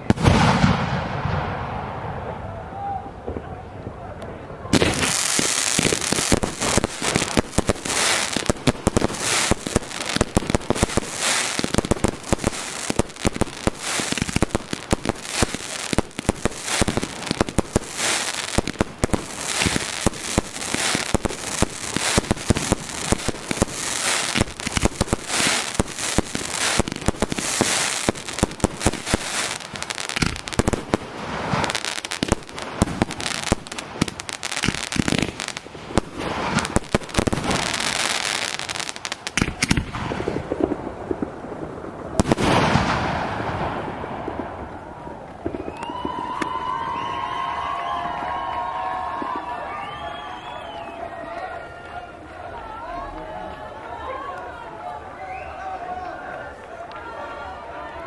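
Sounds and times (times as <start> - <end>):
fireworks bangs and pops: 0.0 - 2.4, 4.7 - 50.8
fireworks hiss: 4.8 - 40.6.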